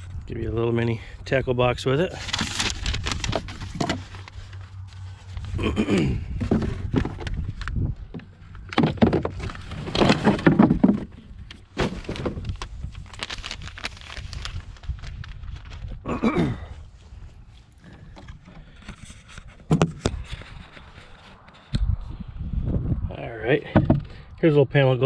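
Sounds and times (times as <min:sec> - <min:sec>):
cardboard box rustling and knocking: 0:02.3 - 0:04.4, 0:06.3 - 0:12.6, 0:19.6 - 0:20.2.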